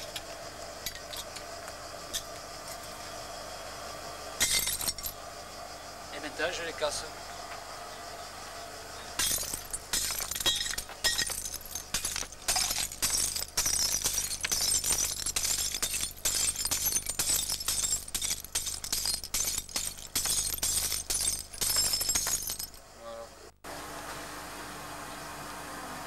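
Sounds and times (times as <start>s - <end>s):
glass bottles smashing: 0.0s - 1.4s, 4.4s - 5.2s, 9.2s - 22.8s
glass shards clinking: 0.0s - 1.4s, 4.4s - 5.2s, 9.2s - 22.8s.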